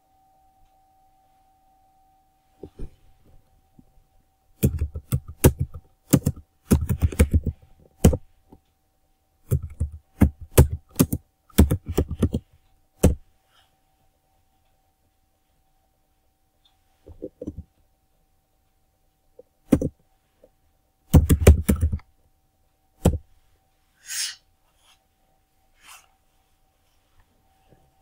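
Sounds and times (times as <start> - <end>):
typing on computer keyboard: 4.6 - 8.2, 9.4 - 13.2, 21.1 - 22.0.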